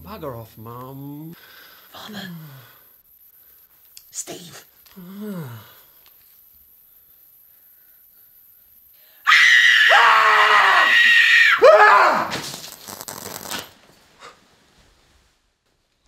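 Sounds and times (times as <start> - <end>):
crackle: 2.9 - 9.1, 12.3 - 16.0
loud scream falling in pitch: 9.2 - 12.4.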